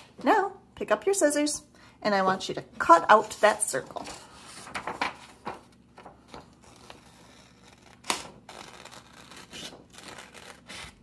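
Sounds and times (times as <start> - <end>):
scissors snipping paper: 6.6 - 11.0.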